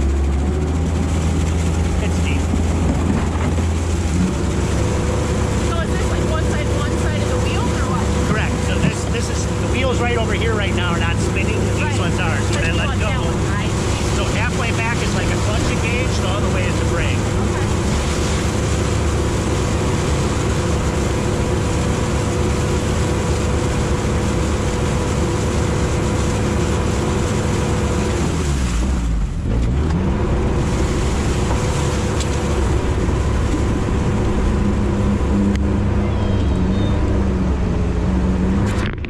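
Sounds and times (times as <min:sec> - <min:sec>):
diesel engine running under load: 0:00.0 - 0:39.0
vehicle moving over ice: 0:00.0 - 0:39.0.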